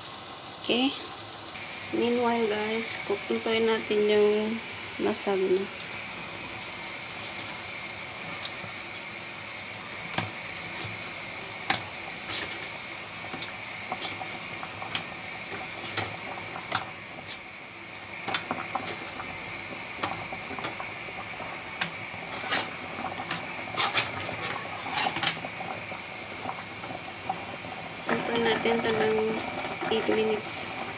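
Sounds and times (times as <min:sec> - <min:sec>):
water boiling in a frying pan: 0:00.0 - 0:30.9.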